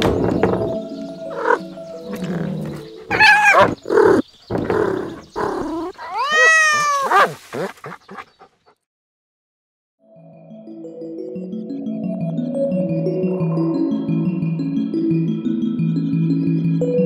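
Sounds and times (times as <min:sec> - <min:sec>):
cats meowing: 0:01.3 - 0:07.7.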